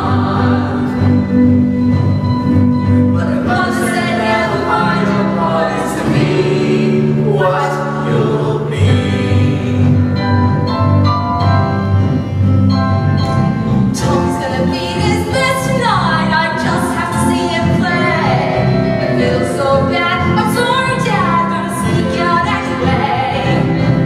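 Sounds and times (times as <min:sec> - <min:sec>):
choir-like singing: 0:00.0 - 0:01.6, 0:03.1 - 0:10.0
rock band sustained chords: 0:00.0 - 0:16.1.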